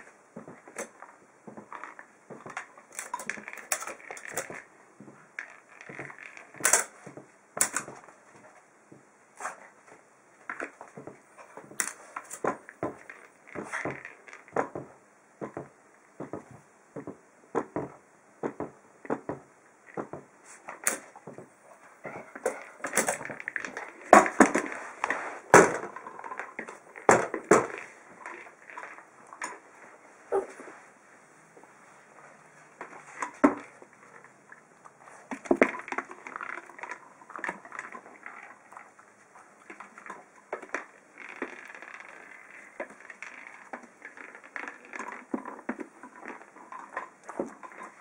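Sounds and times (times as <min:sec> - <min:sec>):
ball knocking on metal and floor: 0:10.5 - 0:21.5.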